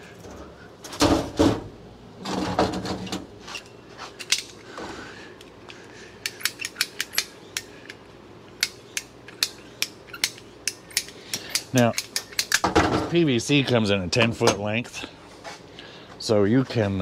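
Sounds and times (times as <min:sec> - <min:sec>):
pipe cutter ratchet clicks: 0:06.2 - 0:12.6.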